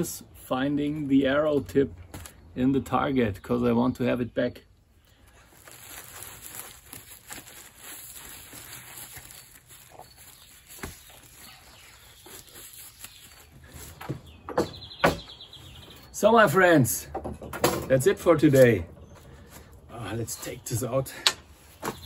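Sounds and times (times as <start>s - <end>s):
plastic wrap crinkling: 5.2s - 14.0s.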